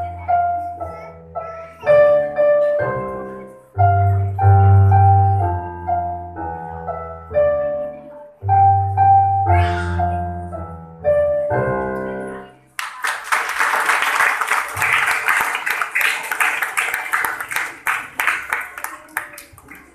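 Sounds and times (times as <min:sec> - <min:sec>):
electronic keyboard piano voice: 0:00.0 - 0:12.6
applause: 0:12.8 - 0:19.9.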